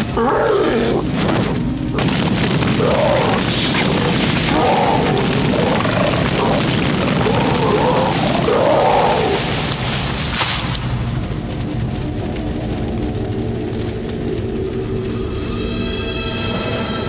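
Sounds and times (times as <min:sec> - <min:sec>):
forest fire roaring: 0:00.0 - 0:17.0
music: 0:09.7 - 0:17.0.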